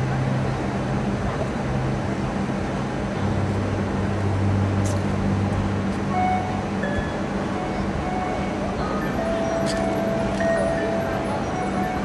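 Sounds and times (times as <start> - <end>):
low ambient drone notes: 0.0 - 12.0
outdoor background noise: 0.0 - 12.0
high bell-like notes: 6.1 - 12.0.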